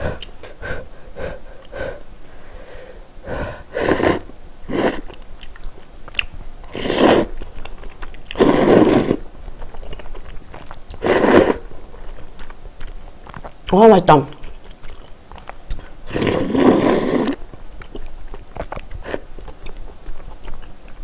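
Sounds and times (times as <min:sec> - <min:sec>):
slurping noodles: 0:03.8 - 0:05.1, 0:06.7 - 0:07.4, 0:08.3 - 0:09.2, 0:10.9 - 0:11.7, 0:16.0 - 0:17.4
soft chewing clicks: 0:05.0 - 0:06.7, 0:07.4 - 0:08.4, 0:09.4 - 0:11.0, 0:11.7 - 0:16.0, 0:17.3 - 0:21.0.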